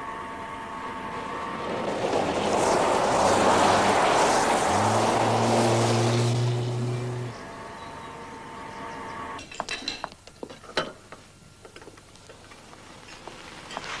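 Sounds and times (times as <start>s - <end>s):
low steady hum: 0.0s - 13.0s
car driving past on gravel: 1.3s - 7.5s.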